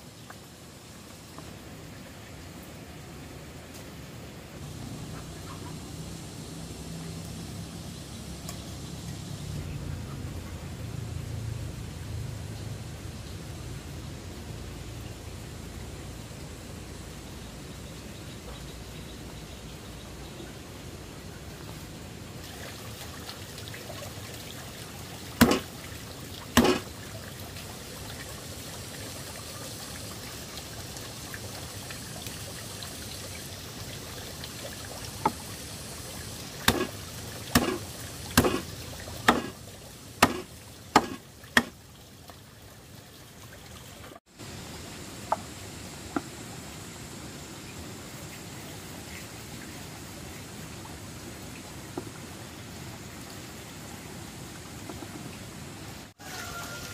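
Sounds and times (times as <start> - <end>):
water trickling: 0.0 - 56.9
sharp knocks: 25.4 - 25.7, 26.6 - 26.9, 40.2 - 41.7.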